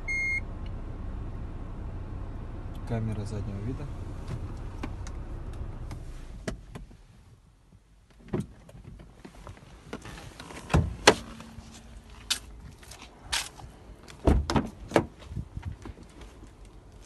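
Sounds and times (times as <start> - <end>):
low steady hum: 9.7 - 14.2
car door clicks and knocks: 14.2 - 15.9.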